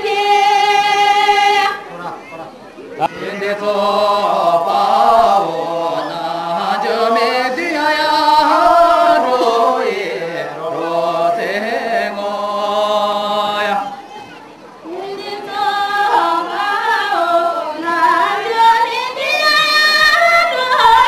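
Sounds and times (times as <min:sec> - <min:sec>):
voices singing chant-like song: 0:00.0 - 0:21.0.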